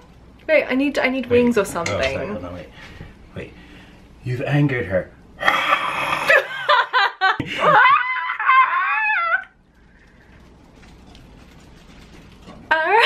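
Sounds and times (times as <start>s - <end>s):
woman laughing: 6.3s - 9.5s
woman squealing: 7.6s - 9.6s.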